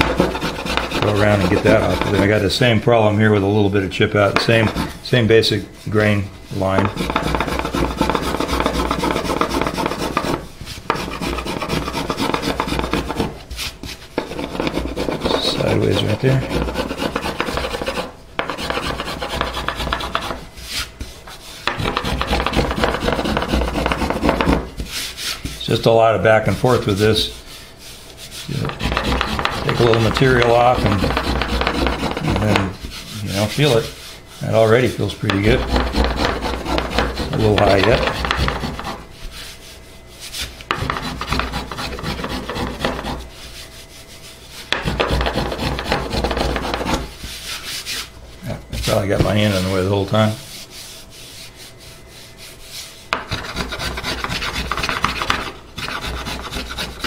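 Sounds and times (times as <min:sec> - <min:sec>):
small plane shaving wood: 0:00.0 - 0:02.4, 0:04.4 - 0:05.0, 0:06.8 - 0:13.4, 0:14.2 - 0:21.1, 0:21.7 - 0:25.2, 0:28.3 - 0:39.0, 0:40.7 - 0:43.4, 0:44.7 - 0:47.1, 0:53.2 - 0:57.0.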